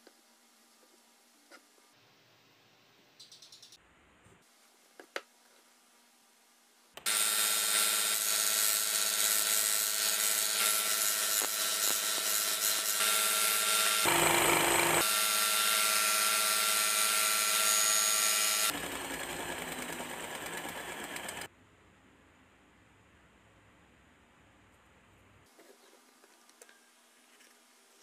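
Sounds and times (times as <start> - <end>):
belt sander sanding wood: 7.1 - 21.5.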